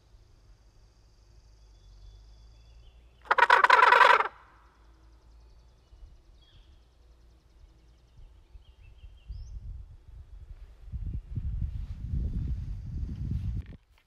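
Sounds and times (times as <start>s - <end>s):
faint bird chirps: 0.4s - 9.8s
turkey gobble: 3.3s - 4.5s.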